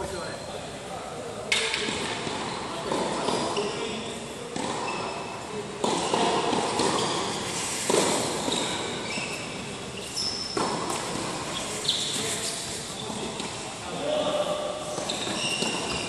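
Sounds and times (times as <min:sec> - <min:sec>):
tennis balls struck and bouncing: 0:04.5 - 0:04.9, 0:05.8 - 0:08.8, 0:10.5 - 0:11.3
short high squeaks: 0:08.5 - 0:10.6, 0:11.5 - 0:13.1, 0:15.0 - 0:16.0.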